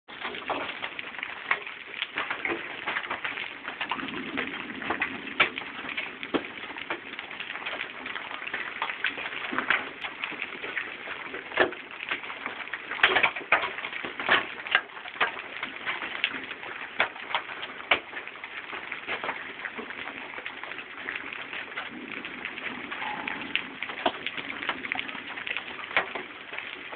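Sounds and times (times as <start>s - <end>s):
hailstones cracking on hard surfaces: 0.1s - 26.9s
rain hiss: 0.2s - 26.9s.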